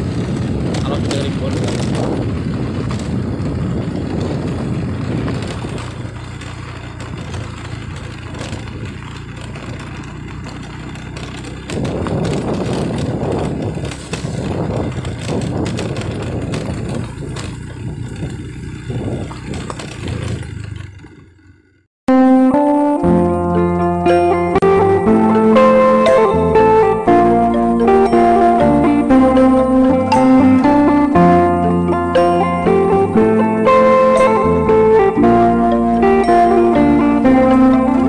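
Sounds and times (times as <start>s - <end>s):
knocks from rough ground: 0.0s - 21.8s
motorcycle engine hum: 0.0s - 38.0s
wind: 0.0s - 38.0s.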